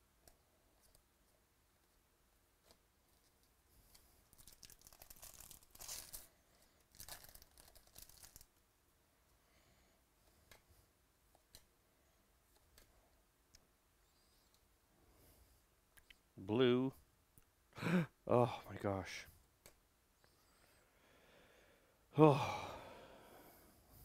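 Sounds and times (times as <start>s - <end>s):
foil wrapper tearing and crinkling: 4.3s - 8.5s.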